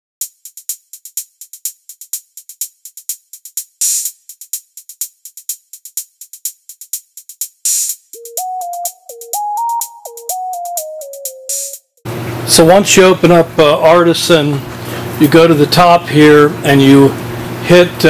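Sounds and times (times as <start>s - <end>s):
drum machine beat: 0.2s - 12.0s
stepping synth melody: 8.1s - 12.0s.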